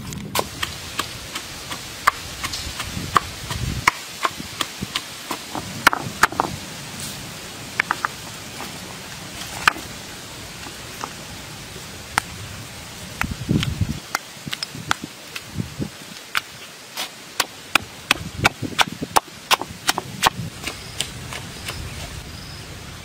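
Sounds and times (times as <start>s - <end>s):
pestle pounding in stone mortar: 0.3s - 6.6s, 16.3s - 21.9s.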